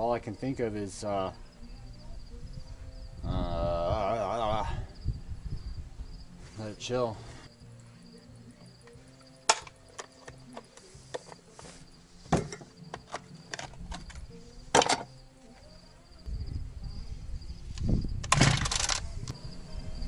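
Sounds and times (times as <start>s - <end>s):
insects chirping: 0.0s - 20.0s
low rumble: 4.8s - 6.4s
tools knocking on workbench: 12.3s - 13.0s.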